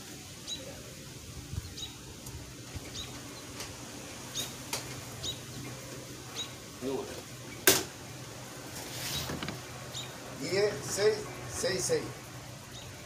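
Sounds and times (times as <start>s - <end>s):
bird chirping: 0.4s - 0.7s, 1.5s - 2.0s, 2.8s - 6.7s, 9.0s - 10.2s, 12.6s - 13.0s.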